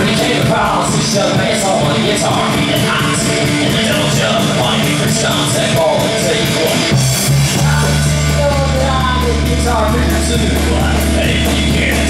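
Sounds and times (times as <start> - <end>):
live rock band playing: 0.0 - 12.0
bass guitar low held note: 6.9 - 12.0.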